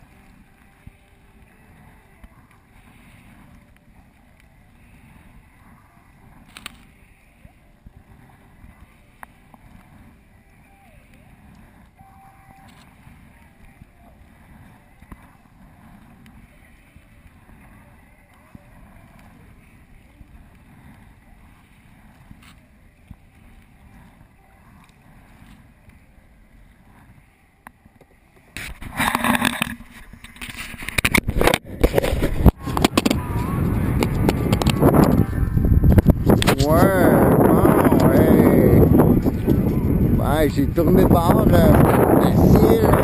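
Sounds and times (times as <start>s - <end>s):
muffled kayak paddling in water: 0.0s - 43.0s
camera housing knocking and scraping: 28.6s - 33.2s.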